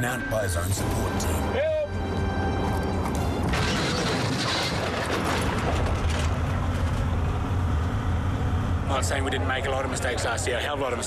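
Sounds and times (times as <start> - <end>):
clattering crash: 3.4 - 7.1.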